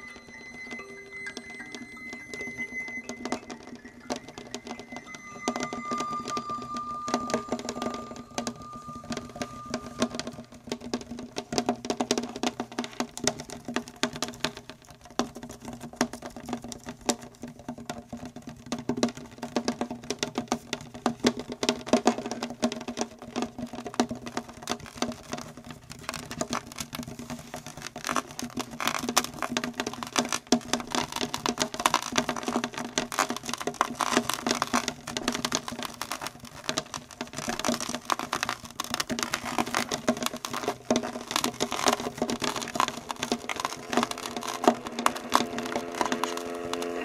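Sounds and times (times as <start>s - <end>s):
low sustained viola tone: 4.1s - 10.3s, 44.4s - 47.0s.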